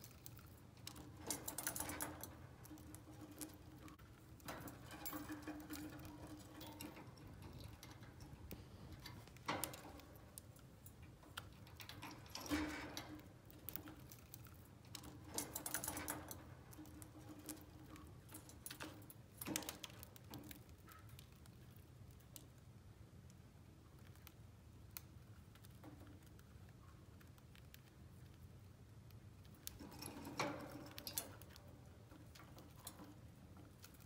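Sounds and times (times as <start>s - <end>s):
birds clicking on cage wire: 0.2s - 8.4s, 11.4s - 20.6s.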